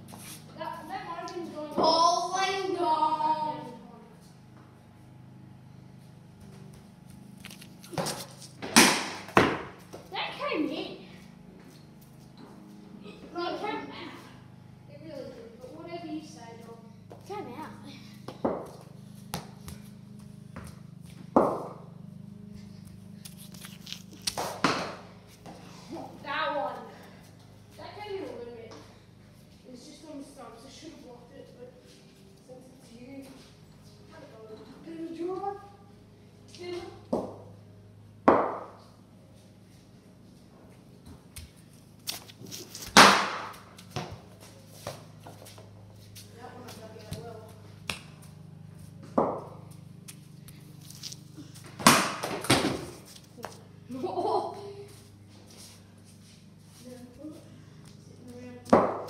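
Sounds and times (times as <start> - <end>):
steady low hum: 0.0 - 59.0
cricket bat hitting ball: 8.0 - 9.7, 42.9 - 43.6, 51.8 - 52.9, 58.7 - 59.0.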